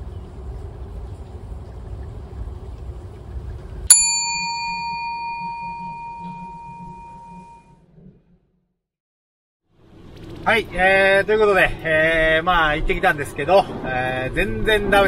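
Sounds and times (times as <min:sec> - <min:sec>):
low outdoor rumble: 0:00.0 - 0:08.7, 0:09.7 - 0:15.0
prayer bowl bell ringing: 0:03.9 - 0:07.6.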